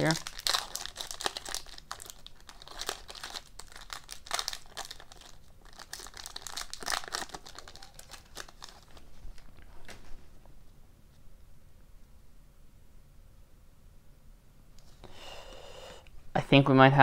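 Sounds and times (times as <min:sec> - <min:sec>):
foil wrapper crinkling: 0:00.0 - 0:10.1.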